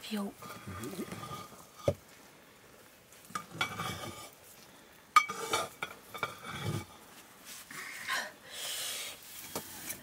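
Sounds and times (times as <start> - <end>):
metal ladle scraping pot: 0.4 - 2.0, 3.3 - 4.4, 5.2 - 7.0.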